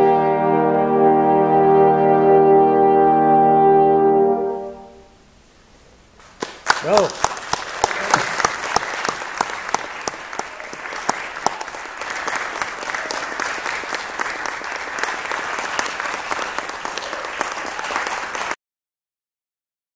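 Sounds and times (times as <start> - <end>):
audience applauding: 6.2 - 18.6.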